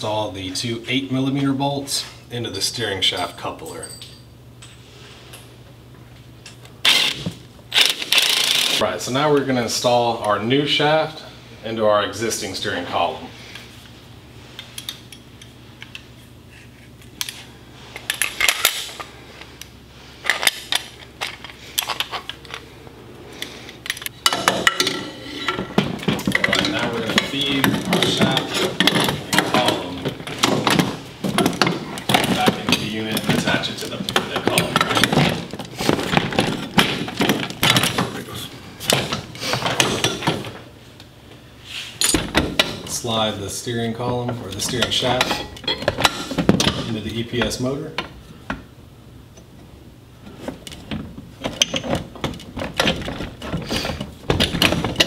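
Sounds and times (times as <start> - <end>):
metal knocks and clinks: 3.0 - 4.7, 42.0 - 42.9
metal parts clinking: 42.0 - 42.7.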